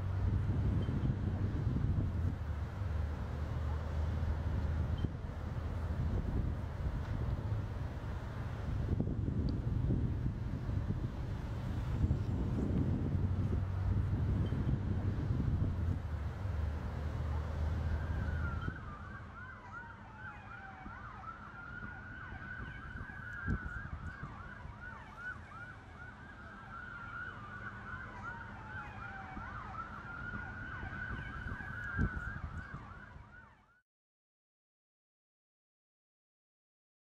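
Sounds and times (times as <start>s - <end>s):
low wind rumble: 0.0s - 33.6s
siren wailing: 17.1s - 33.8s
siren yelp chirps: 17.3s - 33.8s.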